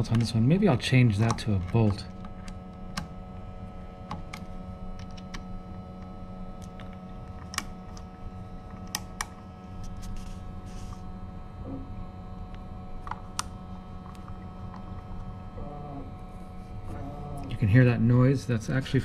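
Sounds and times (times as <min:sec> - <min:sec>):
servo motor humming: 0:16.8 - 0:18.0.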